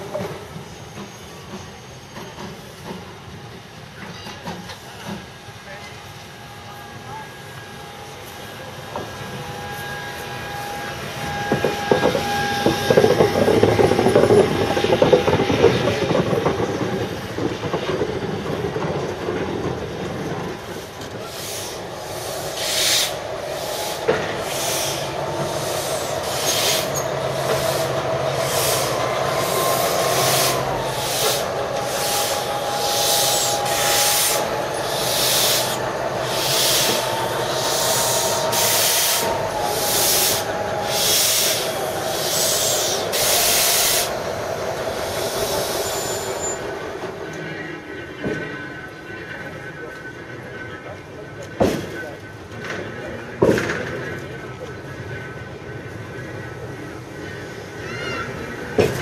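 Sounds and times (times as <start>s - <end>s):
steam train running past: 0.0s - 59.0s
steam hissing in bursts: 20.6s - 46.7s.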